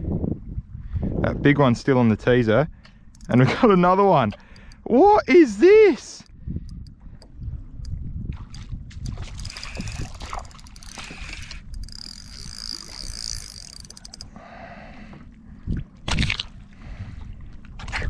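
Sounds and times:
water sloshing around kayak: 6.8s - 18.0s.

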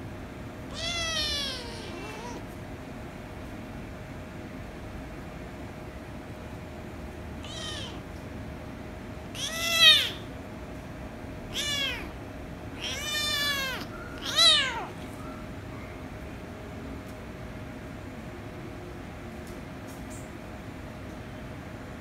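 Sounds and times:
kitten meowing: 0.7s - 2.4s, 7.4s - 8.0s, 9.4s - 10.3s, 11.5s - 12.2s, 12.8s - 15.0s.

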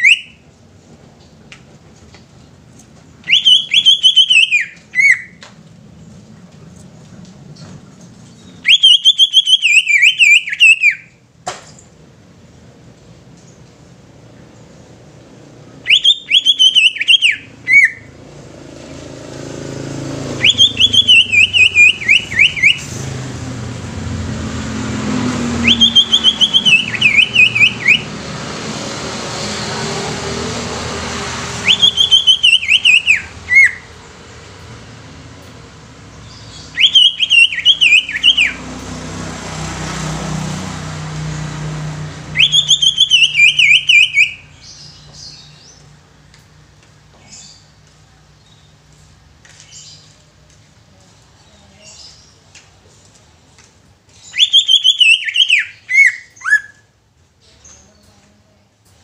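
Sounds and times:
low rumble of passing traffic: 0.0s - 59.0s
bird warbling song: 36.1s - 38.6s, 54.2s - 56.8s.

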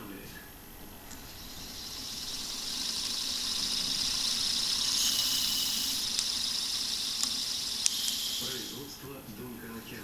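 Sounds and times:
electric motor whirring: 1.1s - 8.9s.

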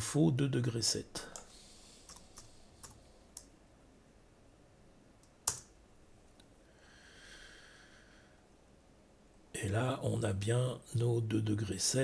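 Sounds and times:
faint hiss: 0.0s - 4.1s, 6.2s - 12.0s
keyboard and mouse clicks: 2.1s - 3.5s, 5.2s - 5.8s.

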